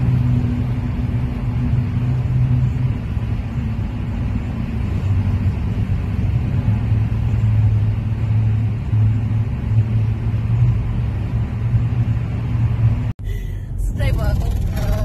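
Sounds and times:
car driving heard from inside: 0.0s - 15.0s.

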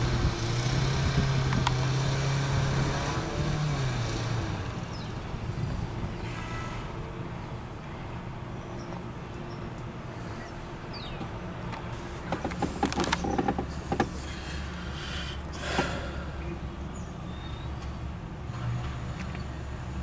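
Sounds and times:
engine humming: 0.0s - 20.0s
sharp clicks and knocks: 11.1s - 14.3s.

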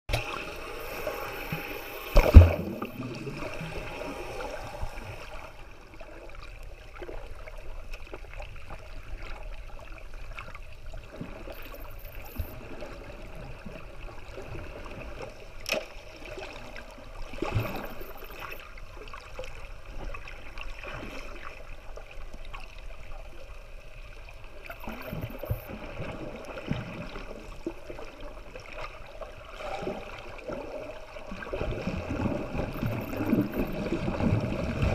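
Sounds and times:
underwater watery hiss: 0.1s - 5.7s.

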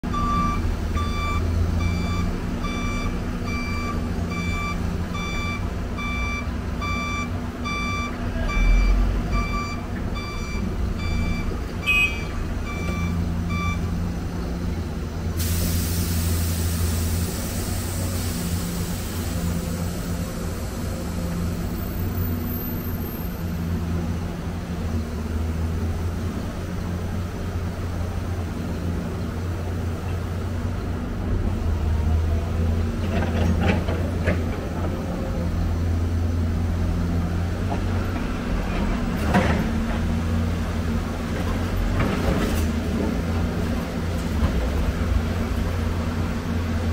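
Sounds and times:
backup alarm beeping: 0.1s - 13.9s
air hissing: 15.4s - 20.0s.

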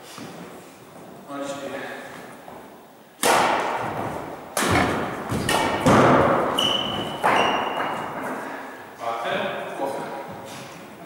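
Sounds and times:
rackets hitting shuttlecock: 3.2s - 8.4s
shoe squeak: 6.5s - 8.1s.

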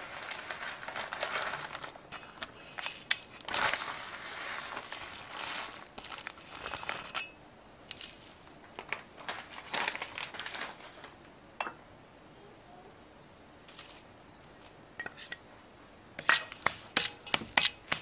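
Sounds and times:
biscuit crumbs rustling and crunching: 0.0s - 11.2s, 13.7s - 14.7s.

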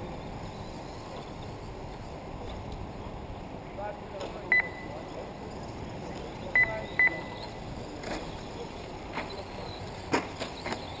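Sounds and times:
high electronic beeps: 4.5s - 5.0s, 6.5s - 7.6s.

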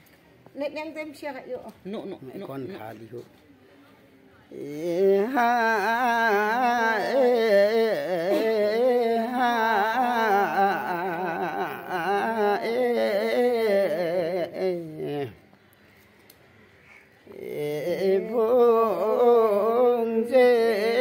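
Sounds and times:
person singing with vibrato: 4.5s - 15.4s, 17.2s - 21.0s.

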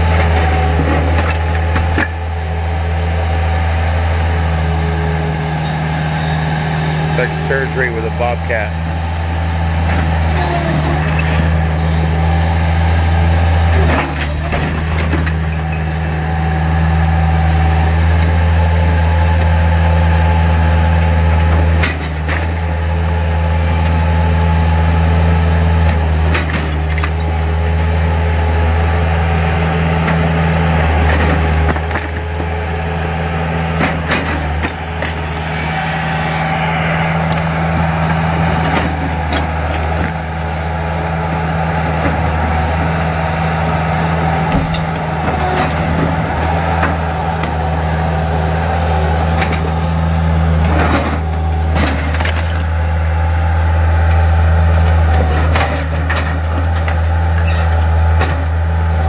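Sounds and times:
loader engine running: 0.0s - 59.0s
bricks breaking and falling: 0.2s - 2.4s, 31.4s - 32.7s.

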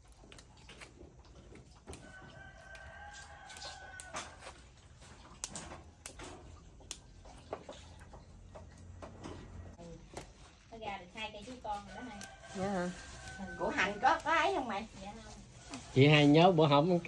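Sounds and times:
rooster crowing: 1.9s - 4.6s, 11.9s - 14.4s.

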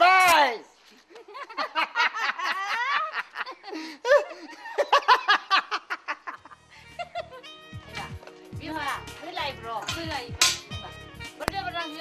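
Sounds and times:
man and woman laughing: 1.1s - 7.5s.

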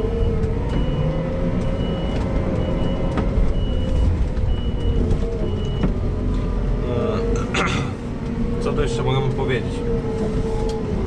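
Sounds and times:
reversing alarm beeping: 0.0s - 6.3s
diesel engine running: 0.0s - 11.0s.

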